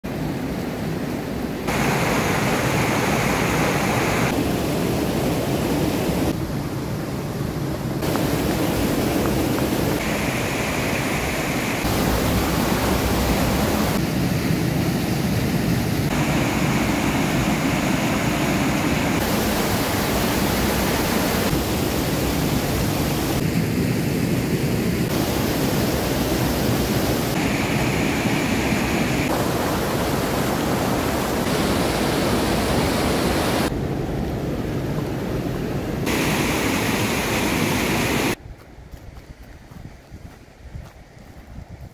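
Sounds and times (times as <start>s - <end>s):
waterfall rushing: 1.7s - 6.3s, 7.9s - 23.7s, 25.0s - 33.8s, 35.2s - 38.4s.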